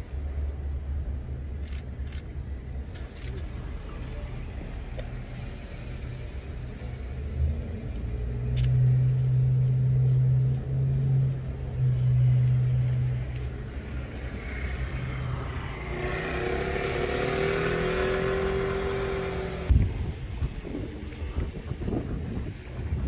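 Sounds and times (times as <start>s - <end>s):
low engine hum: 0.0s - 23.0s
engine tone rising: 14.4s - 19.8s.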